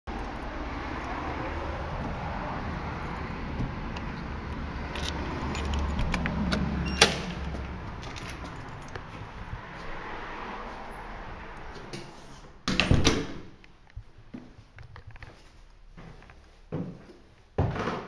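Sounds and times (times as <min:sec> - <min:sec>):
keys jangling in lock: 0:04.9 - 0:09.2.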